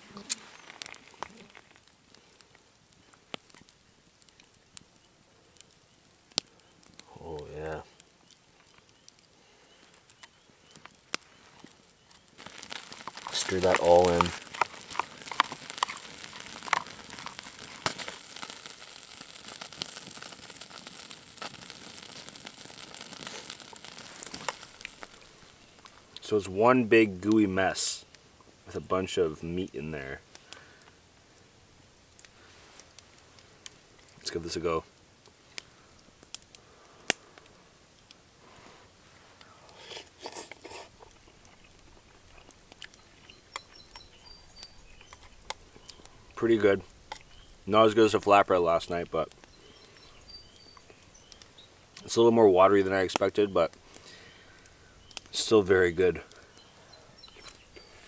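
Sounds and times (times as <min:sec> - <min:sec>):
stew sizzling over campfire: 0:00.0 - 0:58.0
sharp clicks: 0:12.2 - 0:25.9
person chewing: 0:12.4 - 0:18.9.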